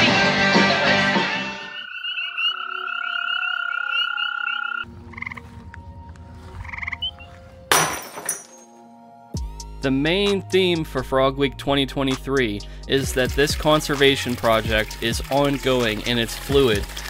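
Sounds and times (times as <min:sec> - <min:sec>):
music: 0:00.0 - 0:01.8, 0:04.8 - 0:17.0
frogs calling: 0:01.6 - 0:05.5, 0:06.6 - 0:07.3.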